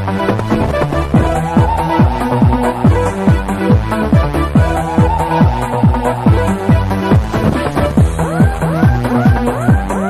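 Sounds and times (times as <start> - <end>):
steady kick drum: 0.4 - 9.9
electronic dance music: 0.8 - 10.0
held synth tones: 0.9 - 3.5, 4.6 - 9.1.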